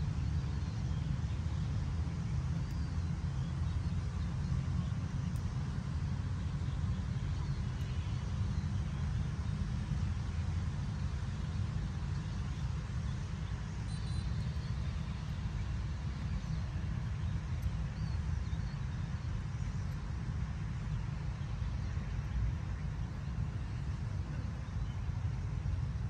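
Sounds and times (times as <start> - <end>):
steady low rumble: 0.0 - 26.0
faint high chirp: 13.8 - 15.0.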